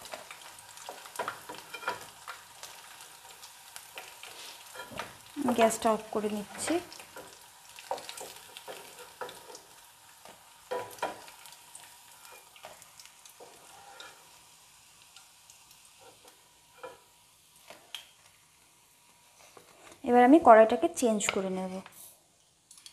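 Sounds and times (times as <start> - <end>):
frying oil sizzling faintly: 0.0 - 22.9
spatula scraping pan: 1.0 - 2.3, 4.0 - 5.2, 6.4 - 11.5, 13.4 - 14.4.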